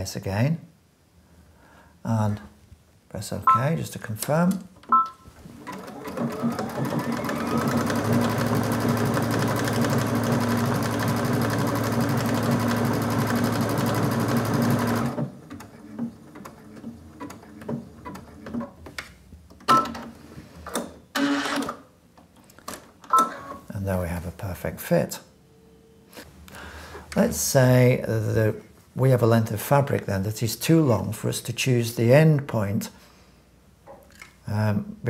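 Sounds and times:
sewing machine motor running: 0:05.6 - 0:15.3.

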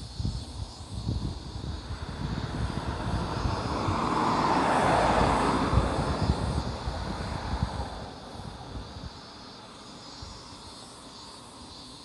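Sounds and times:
vehicle passing by: 0:01.4 - 0:09.0.

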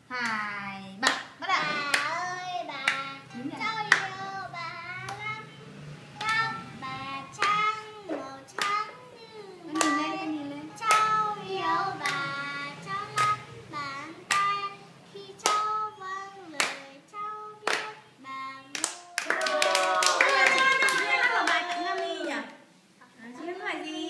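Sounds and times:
people singing birthday song: 0:00.0 - 0:20.0
hands clapping: 0:08.5 - 0:08.8, 0:09.8 - 0:10.0, 0:17.6 - 0:18.0, 0:18.7 - 0:22.6.

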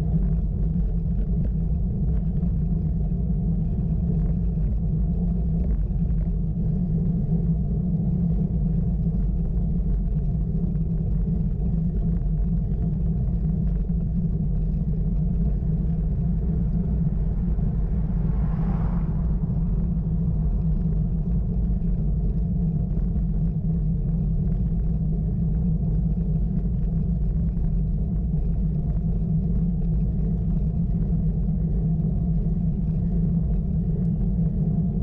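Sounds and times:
wind buffeting microphone: 0:00.0 - 0:35.0
road noise: 0:14.0 - 0:25.1.

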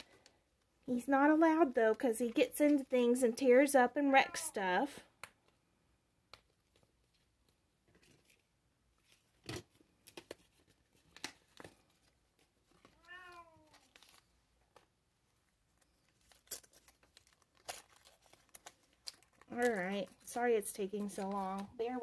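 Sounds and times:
cat meowing: 0:13.0 - 0:13.8.

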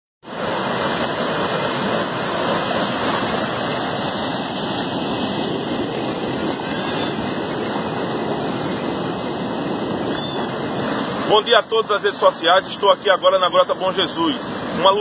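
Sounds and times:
floodwater rushing through gully: 0:00.2 - 0:15.0.

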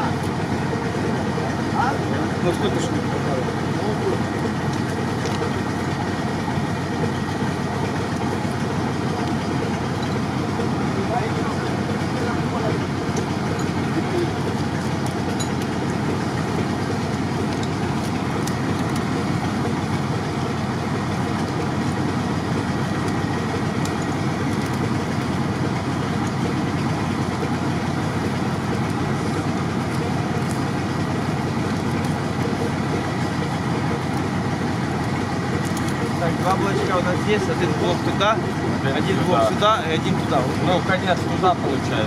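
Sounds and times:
truck engine idling: 0:00.0 - 0:42.0.

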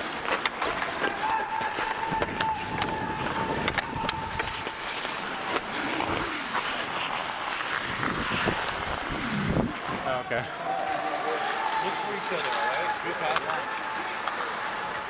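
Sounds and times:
stick clicking on puck: 0:00.0 - 0:06.0, 0:11.6 - 0:14.4
skate blades scraping on ice: 0:00.0 - 0:10.0.

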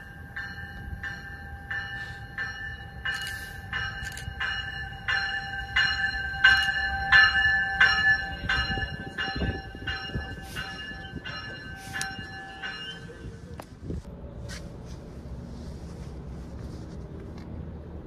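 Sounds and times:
crossing bell ringing: 0:00.0 - 0:13.6
low train rumble: 0:00.0 - 0:18.0.

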